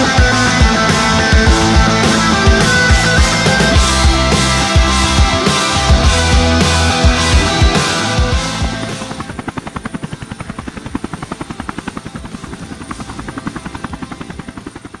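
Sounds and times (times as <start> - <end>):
rapid chopping beat: 0.1 - 9.0.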